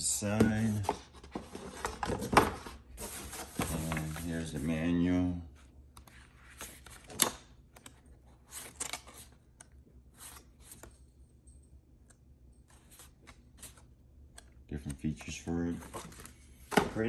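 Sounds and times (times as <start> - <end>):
paper pages rustling and flipping: 0.4 - 4.7, 5.9 - 10.9, 12.7 - 14.5, 15.7 - 17.0.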